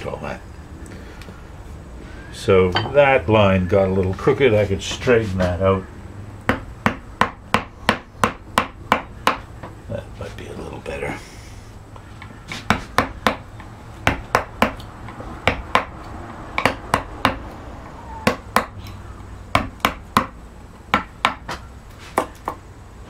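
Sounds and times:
wooden mallet tapping gouge: 12.2 - 15.9, 16.6 - 17.4.

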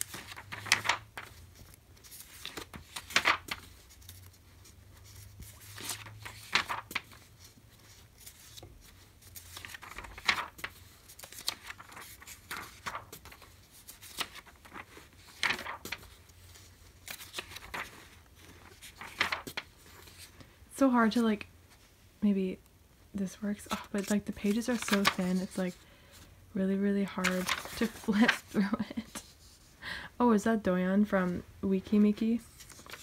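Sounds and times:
magazine pages turning: 0.0 - 20.4, 23.6 - 26.2, 27.1 - 29.7, 32.4 - 33.0.

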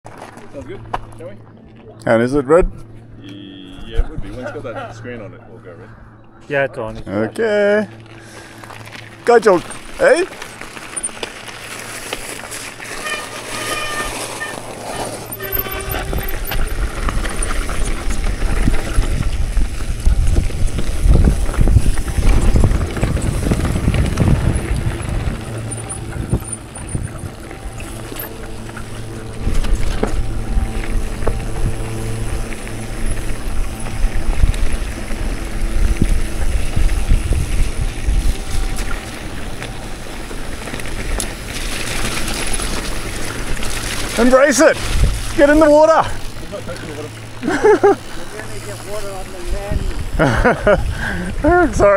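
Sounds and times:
bike rattling over rough ground: 0.0 - 3.2, 6.5 - 51.9
wind rumble on camera: 15.2 - 46.3, 49.5 - 51.9.

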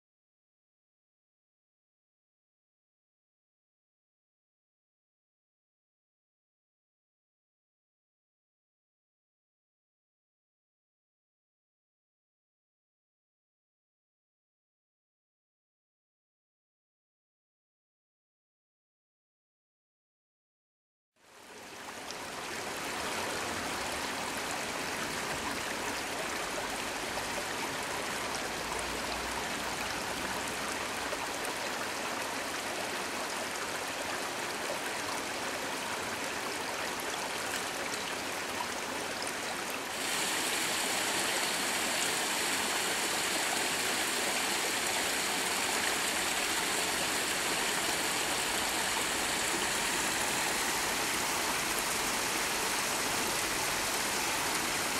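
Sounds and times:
stream running over rocks: 21.4 - 54.9.

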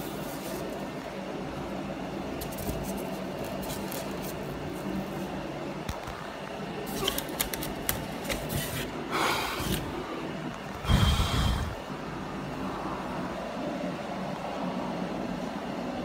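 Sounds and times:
small clicks and scratches: 2.4 - 5.1, 6.9 - 8.8.

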